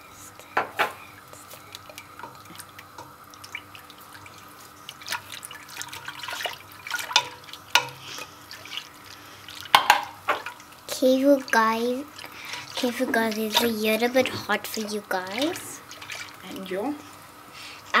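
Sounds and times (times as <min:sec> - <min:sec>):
milk sloshing in a metal pot: 0:01.7 - 0:10.7, 0:11.4 - 0:16.7
whisk knocking against pot: 0:07.0 - 0:08.0, 0:09.7 - 0:10.5.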